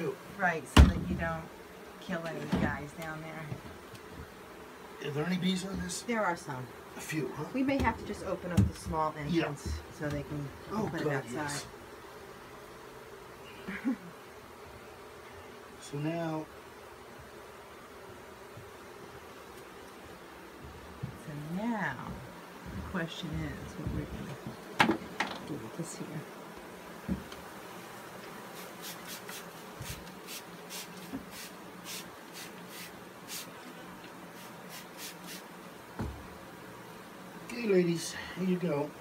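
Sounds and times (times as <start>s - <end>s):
honeybee swarm buzzing: 0.0s - 39.0s
soft low thumps: 20.6s - 24.6s
dry scratching sounds: 28.4s - 35.5s.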